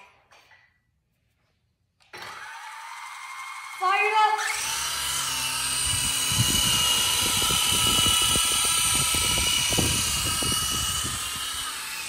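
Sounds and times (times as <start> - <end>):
toy helicopter motors whining: 2.1 - 12.0
choppy rotor rumble: 5.2 - 12.0.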